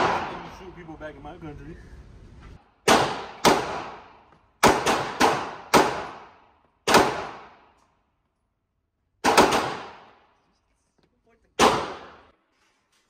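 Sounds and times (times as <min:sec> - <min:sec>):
pistol shots echoing indoors: 0:02.8 - 0:07.7, 0:09.2 - 0:10.2.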